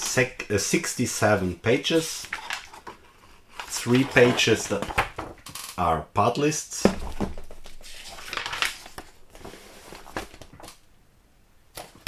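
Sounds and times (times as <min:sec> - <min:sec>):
plastic crinkling and rustling: 0:07.2 - 0:10.8.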